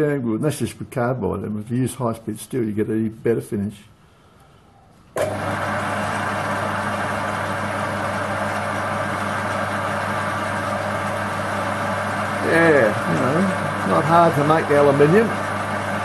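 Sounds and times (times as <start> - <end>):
metal lathe motor humming: 5.2 - 16.0.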